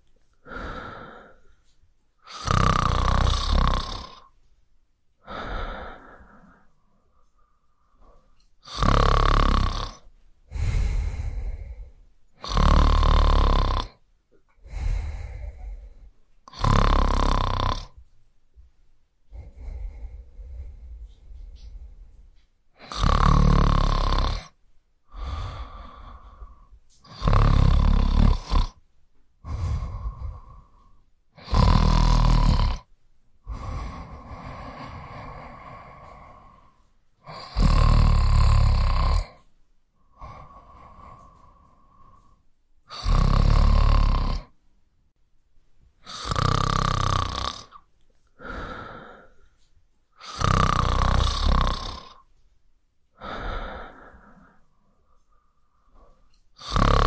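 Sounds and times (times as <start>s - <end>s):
person snoring: 0.4s - 1.5s, 2.2s - 4.3s, 5.2s - 6.7s, 8.0s - 14.0s, 14.6s - 18.0s, 19.3s - 22.2s, 22.8s - 28.8s, 29.4s - 44.6s, 46.0s - 49.6s, 50.2s - 52.3s, 53.2s - 57.0s
breathy exhale: 0.4s - 1.6s, 5.2s - 6.7s, 10.5s - 12.0s, 14.6s - 16.1s, 25.1s - 26.8s, 29.4s - 31.7s, 33.4s - 37.8s, 40.1s - 43.2s, 48.4s - 49.6s, 53.2s - 57.0s.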